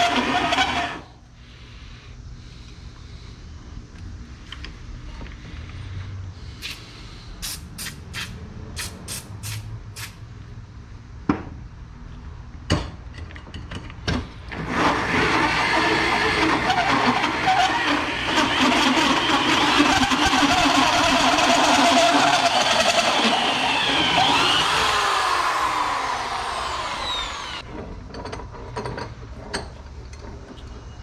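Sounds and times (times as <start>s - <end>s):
electric drill cutting metal: 0.0s - 1.0s, 14.6s - 27.6s.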